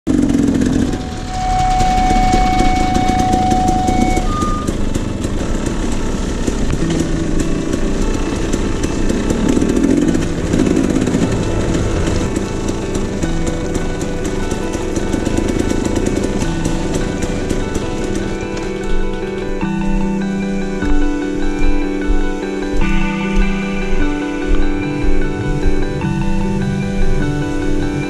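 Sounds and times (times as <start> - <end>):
off-road vehicle engine running: 0.1 - 21.0
high electronic tone: 0.2 - 28.0
short high beep: 1.1 - 4.8.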